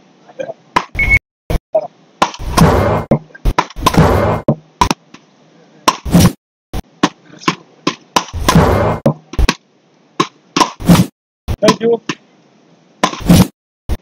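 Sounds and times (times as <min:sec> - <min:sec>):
wooden paddles smacking ball: 0:02.2 - 0:05.2, 0:05.9 - 0:06.3, 0:07.0 - 0:09.6, 0:10.2 - 0:12.2, 0:13.0 - 0:13.5.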